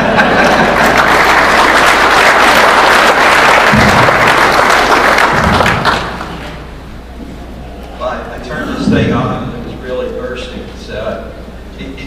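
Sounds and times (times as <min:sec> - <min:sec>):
audience applauding: 0:00.0 - 0:06.7
low thuds: 0:03.7 - 0:04.4.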